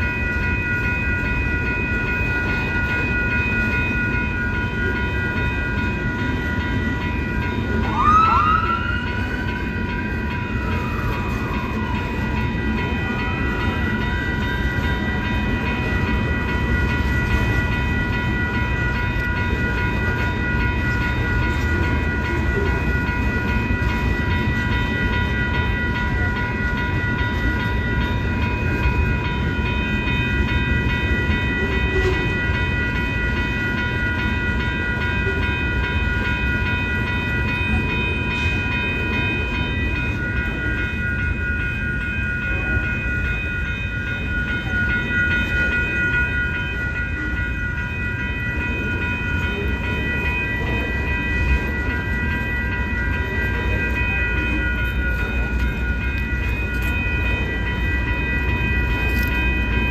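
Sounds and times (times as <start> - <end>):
crossing warning bells ringing: 0.0 - 59.9
train rolling with low rumble: 0.0 - 59.9
wailing tone: 7.8 - 9.5.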